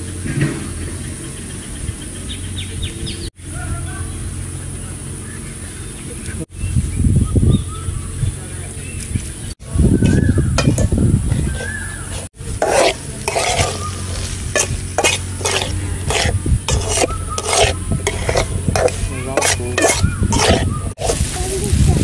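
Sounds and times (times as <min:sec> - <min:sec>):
metal spatula scraping wok: 0:10.0 - 0:21.4
vegetables sizzling in oil: 0:12.6 - 0:22.0.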